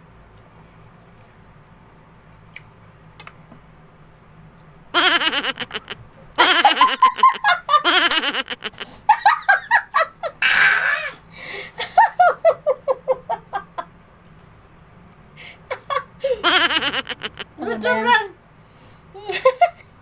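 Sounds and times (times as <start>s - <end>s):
women laughing hard: 5.0s - 10.0s, 16.3s - 17.5s.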